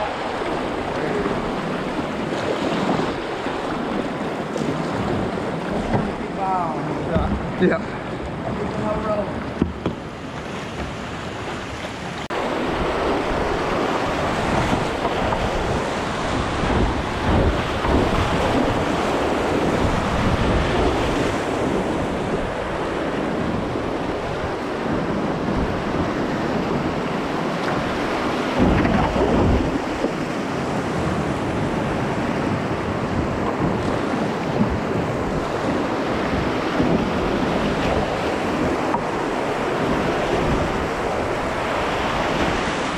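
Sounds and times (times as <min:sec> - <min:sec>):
whitewater rapids rushing: 0:00.0 - 0:09.5
wind buffeting microphone: 0:00.0 - 0:42.9.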